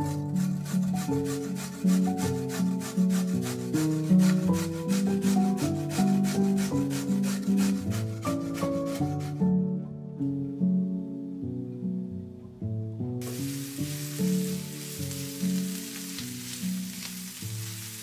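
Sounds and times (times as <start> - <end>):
background music: 0.0 - 18.0
carrot grating rasps: 0.1 - 9.4.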